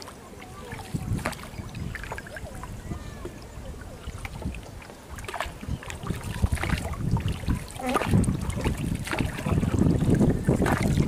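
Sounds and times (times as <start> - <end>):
water gurgling around boat: 0.0 - 11.0.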